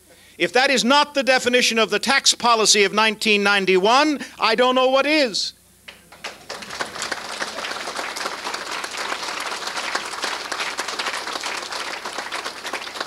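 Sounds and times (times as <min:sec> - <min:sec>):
audience applauding: 0:06.2 - 0:13.0.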